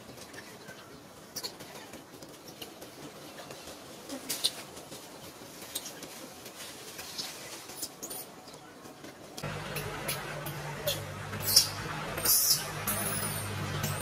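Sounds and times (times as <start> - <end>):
dry leaves crackling and rustling: 2.9 - 8.3.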